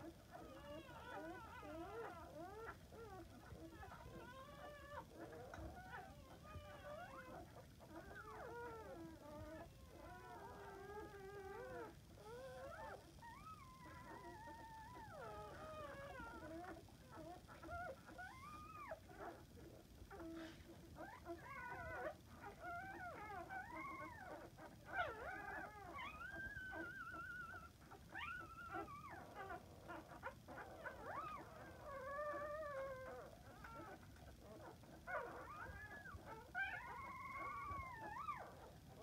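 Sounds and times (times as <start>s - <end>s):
puppies squealing and whining: 0.0s - 39.0s.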